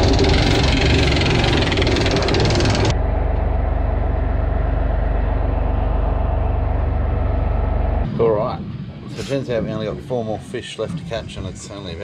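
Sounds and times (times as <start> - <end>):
anchor chain rattling and clanking: 0.0 - 2.9
diesel engine humming: 0.0 - 8.1.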